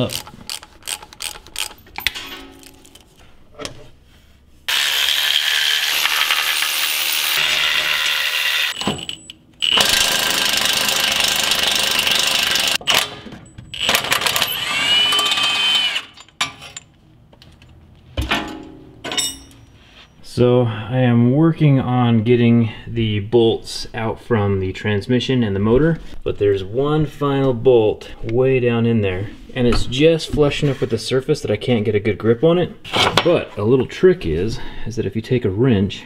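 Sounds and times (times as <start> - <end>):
impact wrench whine: 4.7 - 16.3
hand tools clinking: 19.0 - 19.8.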